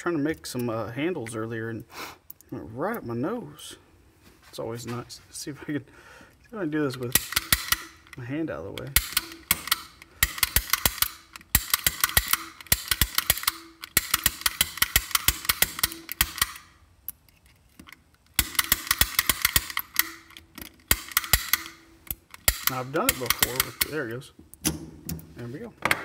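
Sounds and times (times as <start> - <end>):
lock pick gun snapping: 7.0 - 8.2, 8.8 - 17.2, 17.8 - 25.3.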